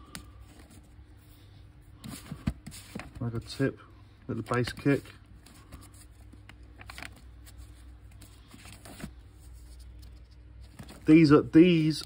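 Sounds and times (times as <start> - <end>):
low steady hum: 0.0 - 12.0
records rustling in paper sleeves: 2.0 - 12.0.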